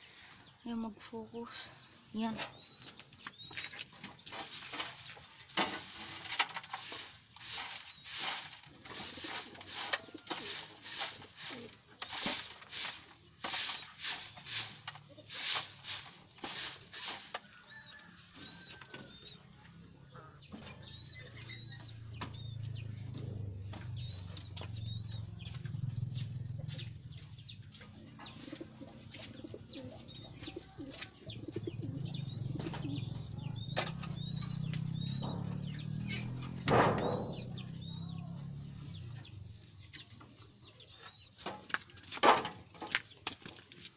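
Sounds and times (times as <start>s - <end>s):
grass broom sweeping dirt floor: 3.6s - 19.2s, 23.6s - 29.6s, 30.4s - 38.9s
pigeons cooing: 6.8s - 13.0s, 28.2s - 37.4s.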